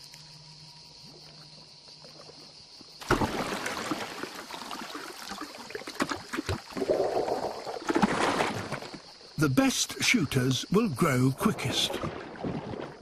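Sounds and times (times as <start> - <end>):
gurgling splash: 3.0 - 9.2, 10.1 - 13.0
water splashing and dripping: 3.0 - 9.3, 10.1 - 13.0.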